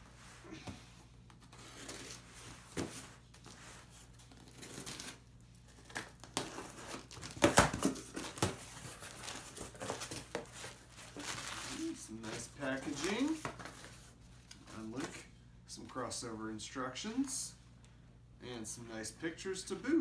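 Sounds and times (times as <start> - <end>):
cardboard rustling: 1.3 - 15.2
packing tape tearing: 4.2 - 11.9.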